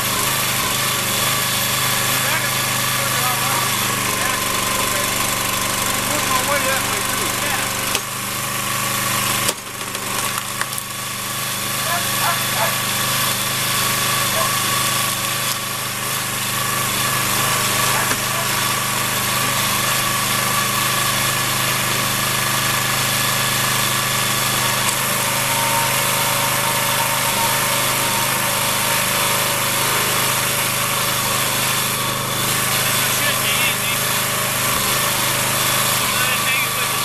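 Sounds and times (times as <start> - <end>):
small engine running steadily: 0.0 - 37.0.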